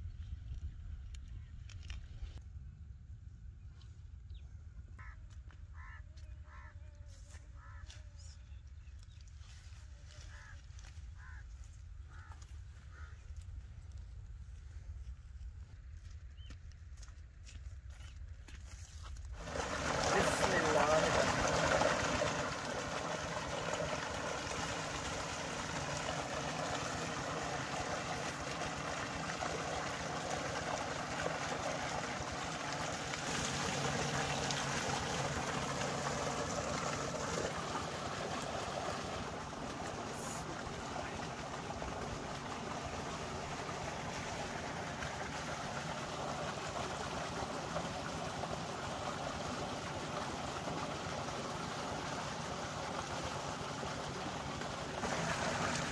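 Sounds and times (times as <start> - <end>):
water gushing into a tank: 19.4 - 55.9.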